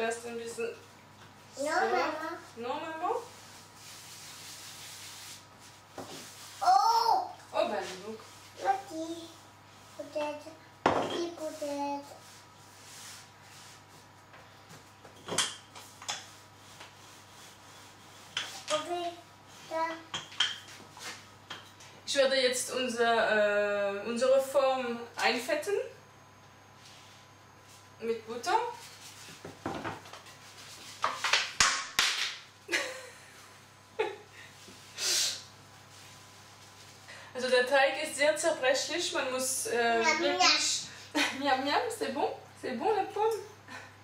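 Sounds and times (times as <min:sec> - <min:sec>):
rolling pin rubbing on dough: 0:03.2 - 0:06.8, 0:11.4 - 0:14.2, 0:15.8 - 0:18.7.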